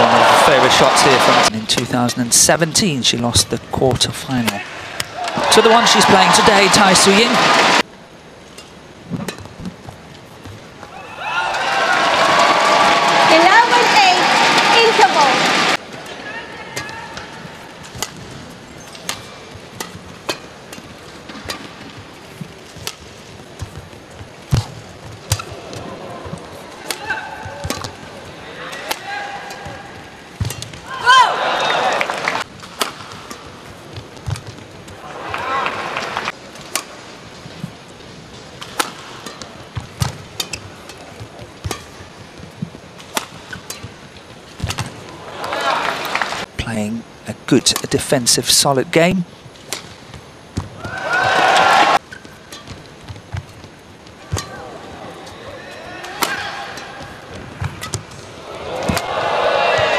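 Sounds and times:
faint arena hum: 0:00.0 - 0:59.9
rackets hitting shuttlecock: 0:16.7 - 0:22.0, 0:22.7 - 0:30.9, 0:32.5 - 0:34.6, 0:36.5 - 0:37.1, 0:38.6 - 0:42.2, 0:43.0 - 0:44.0, 0:44.6 - 0:45.2, 0:54.2 - 0:59.9
footwork thuds on court: 0:22.4 - 0:28.0, 0:49.7 - 0:51.6.

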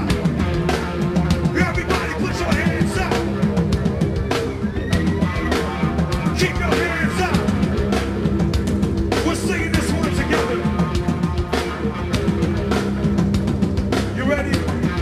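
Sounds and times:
live rock band playing: 0:00.0 - 0:15.0
singer calling into microphone: 0:01.5 - 0:03.4, 0:06.2 - 0:07.6, 0:09.2 - 0:10.8.

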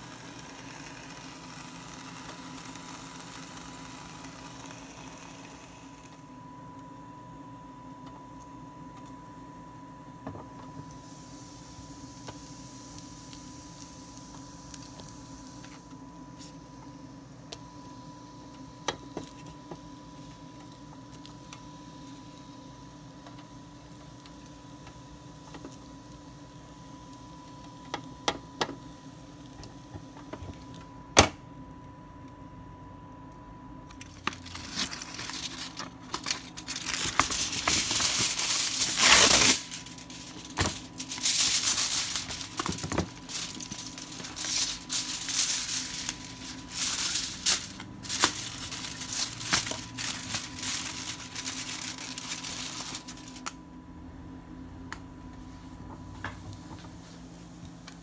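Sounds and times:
faint steady hum: 0:00.0 - 0:58.0
aluminium foil crinkling: 0:33.9 - 0:53.6.

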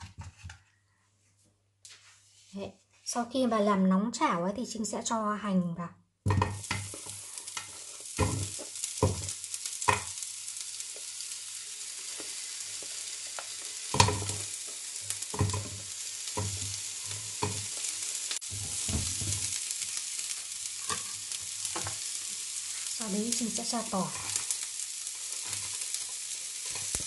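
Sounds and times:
pieces clattering in pan: 0:06.3 - 0:22.6, 0:23.4 - 0:27.0
onions sizzling in frying pan: 0:06.3 - 0:27.0.

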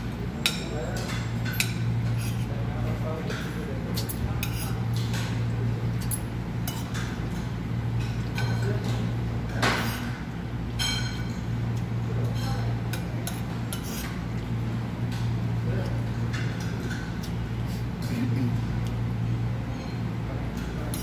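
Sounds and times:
cutlery clinking on a plate: 0:00.4 - 0:02.4, 0:06.0 - 0:10.1, 0:10.8 - 0:11.5, 0:12.2 - 0:14.1.

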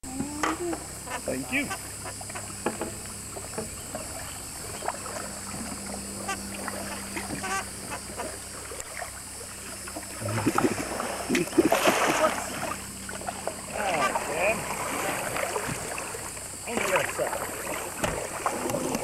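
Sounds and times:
steady background hum: 0:00.0 - 0:19.0
paddle knocks: 0:00.2 - 0:05.8, 0:13.2 - 0:19.0
paddles splashing in water: 0:00.8 - 0:19.0.

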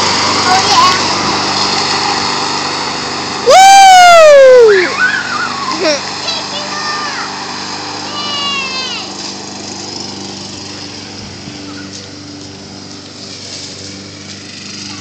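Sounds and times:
lawn mower engine running: 0:00.0 - 0:15.0
child calling out: 0:04.1 - 0:07.4, 0:08.0 - 0:09.2.

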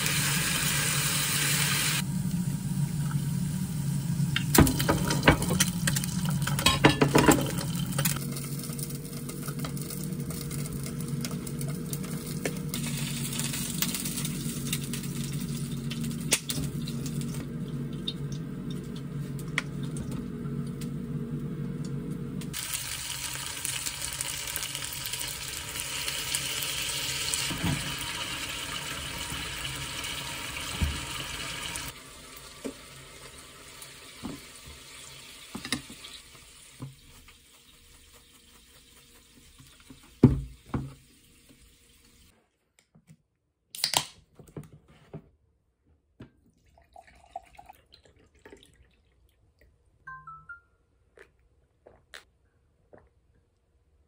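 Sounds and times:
shrimp sizzling in a pan: 0:22.6 - 0:39.5.

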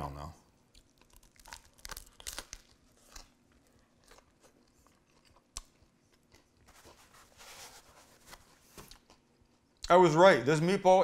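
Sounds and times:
chewing with crunching: 0:00.7 - 0:06.7.

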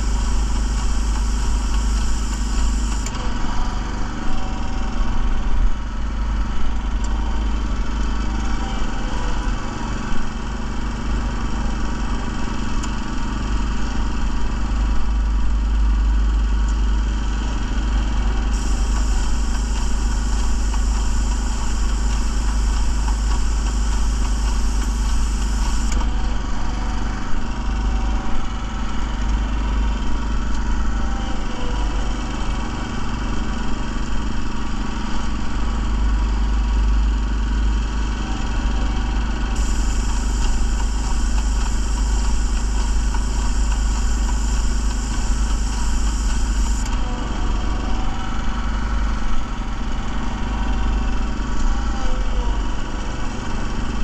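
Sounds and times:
spray gun hissing: 0:00.0 - 0:03.1, 0:18.5 - 0:26.0, 0:39.6 - 0:46.9
small gasoline engine running: 0:00.0 - 0:54.0.

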